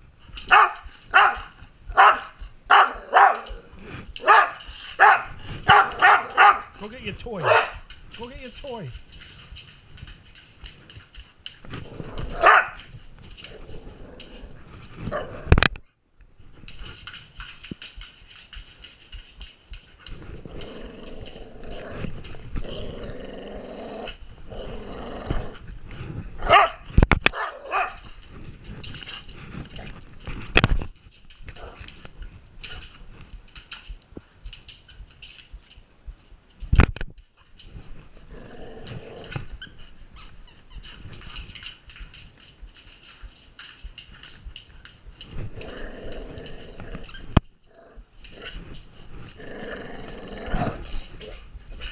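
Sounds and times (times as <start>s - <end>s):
dog barking: 0.5s - 3.6s, 4.2s - 6.7s, 7.4s - 7.8s, 12.4s - 12.8s, 26.4s - 28.0s
dog growling: 2.9s - 6.8s, 11.7s - 12.7s, 13.3s - 15.6s, 20.2s - 26.5s, 38.1s - 39.7s, 45.3s - 51.9s.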